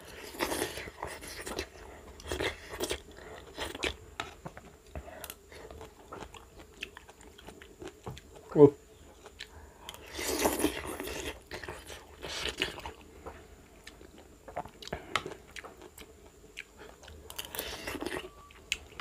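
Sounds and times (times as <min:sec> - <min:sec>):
person biting and chewing food: 0:09.2 - 0:19.0.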